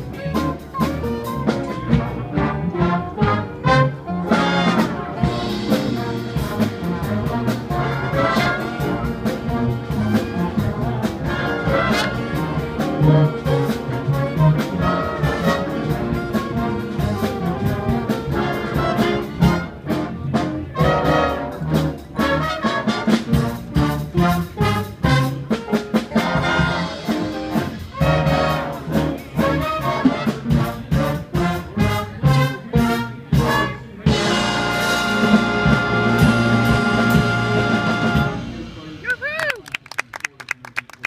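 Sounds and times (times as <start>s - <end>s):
big band with saxophones: 0.0s - 41.0s.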